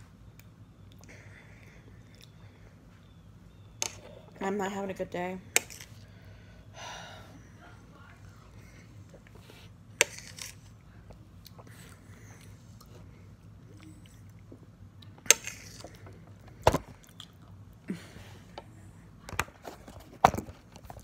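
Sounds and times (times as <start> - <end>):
chewing and mouth noises: 0.3 - 2.4, 11.1 - 17.8.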